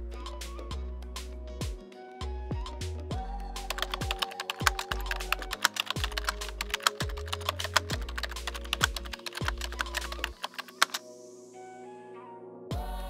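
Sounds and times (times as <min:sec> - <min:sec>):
music with deep bass line: 0:00.0 - 0:04.2
keyboard typing clicks: 0:03.7 - 0:11.0.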